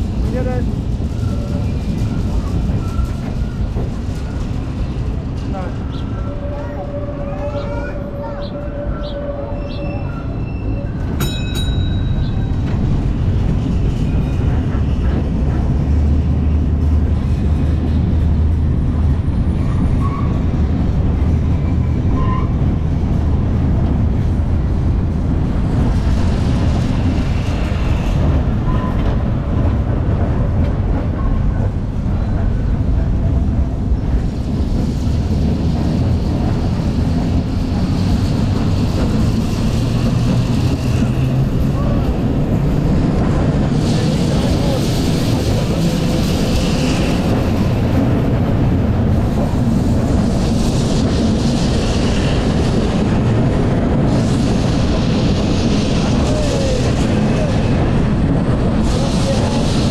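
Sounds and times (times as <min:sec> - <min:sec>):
tram rumbling on rails: 0:00.0 - 0:59.9.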